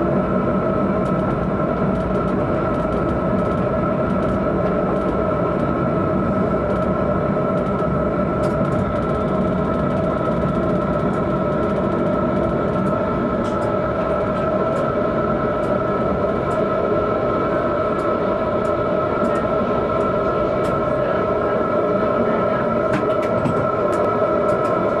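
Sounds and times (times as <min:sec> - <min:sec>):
tram motor whine: 0:00.0 - 0:25.0
tram rumble: 0:00.0 - 0:25.0.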